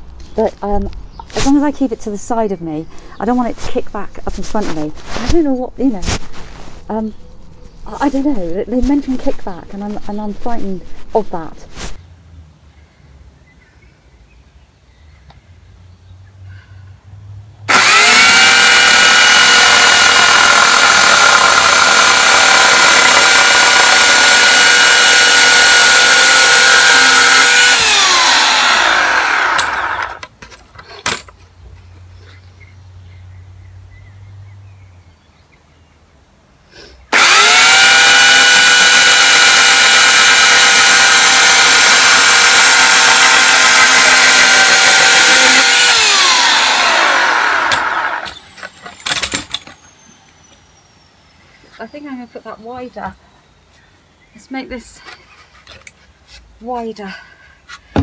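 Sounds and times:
chainsaw cutting wood: 17.7 - 30.3, 37.1 - 50.0.

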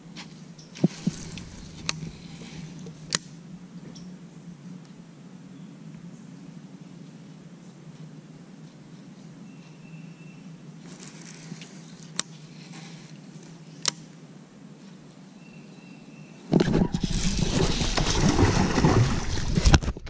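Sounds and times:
fish splashing at water surface: 16.7 - 20.0.

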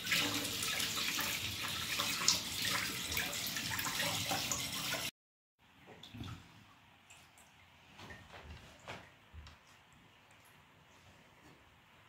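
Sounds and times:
tap water running into sink: 0.0 - 5.1.

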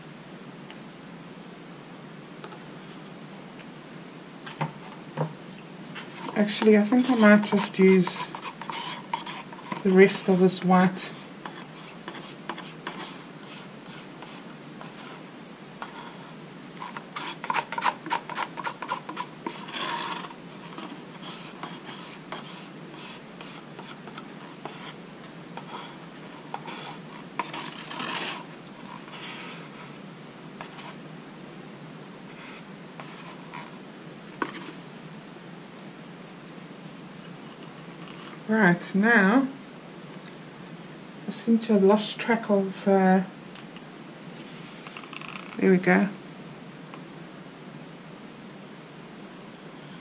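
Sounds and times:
faint steady hiss: 0.0 - 50.0
paint scraped from paper cup: 5.8 - 10.4, 11.0 - 15.2, 16.8 - 25.0, 25.6 - 30.0, 32.3 - 33.7.

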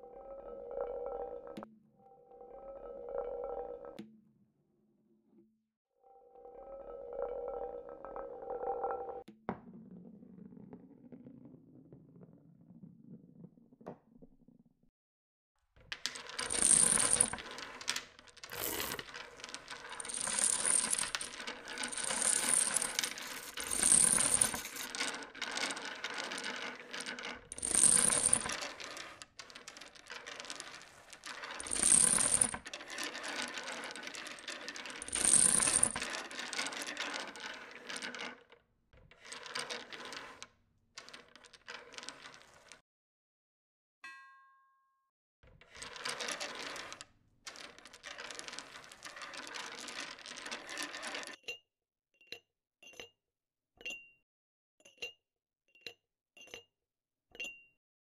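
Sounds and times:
dominoes toppling clatter: 16.2 - 38.4, 45.8 - 51.3.

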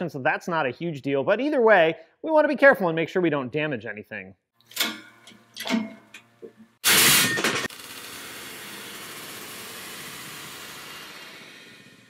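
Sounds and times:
loud bang of parts bursting: 6.8 - 7.8.

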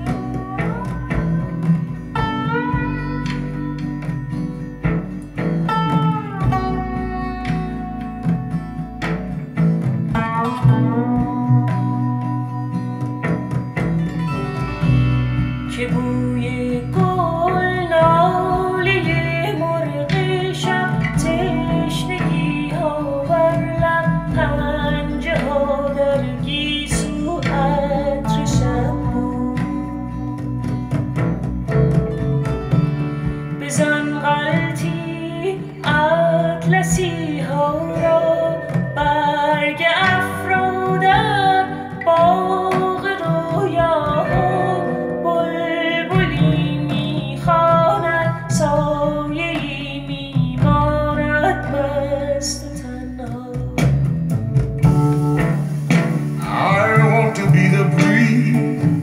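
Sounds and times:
song over hi-fi speakers: 0.0 - 59.0.

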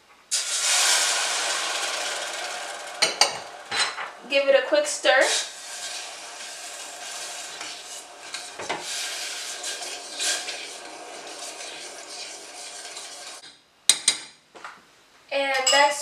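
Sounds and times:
metal spoon stirring in a saucepan: 0.4 - 4.5, 5.1 - 13.4.

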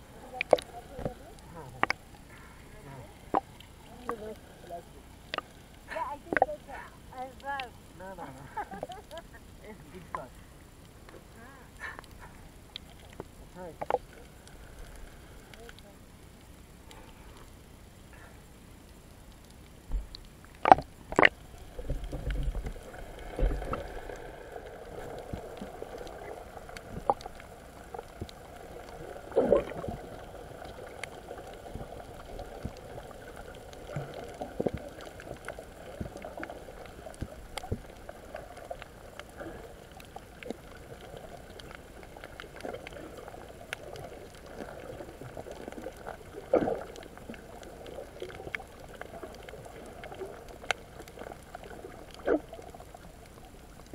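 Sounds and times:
muffled underwater sloshing: 0.0 - 53.9
steady hiss: 0.0 - 53.9.

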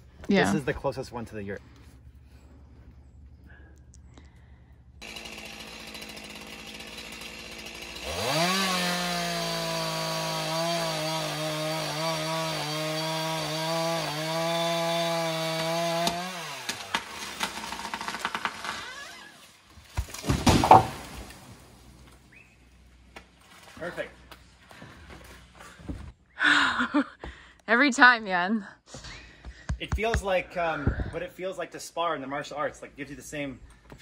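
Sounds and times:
chainsaw revving and cutting: 5.0 - 19.6
wood cracking: 13.0 - 22.3
tree crashing down: 14.8 - 22.2.

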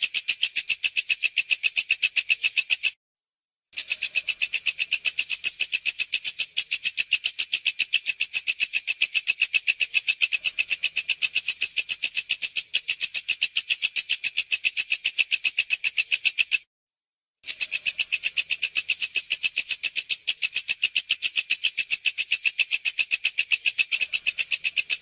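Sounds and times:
bush cricket stridulating: 3.8 - 13.5, 23.5 - 25.0.

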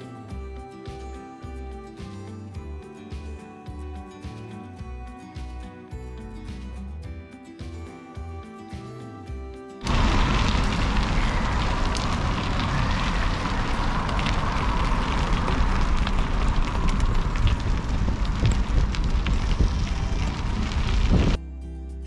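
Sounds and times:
music: 0.0 - 22.0
bicycle tyres rolling on gravel: 9.8 - 21.4
grit crackling: 9.8 - 21.4
wind buffeting microphone: 9.8 - 21.4.

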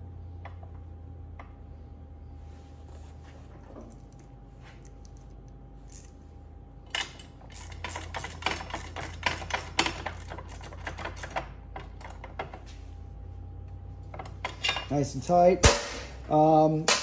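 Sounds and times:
ratcheting wrench clicking: 5.9 - 6.1, 6.9 - 12.4.

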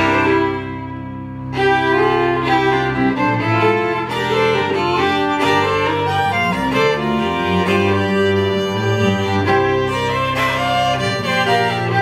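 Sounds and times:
fiddles playing a tune: 0.0 - 12.0
upright double bass: 0.0 - 12.0.

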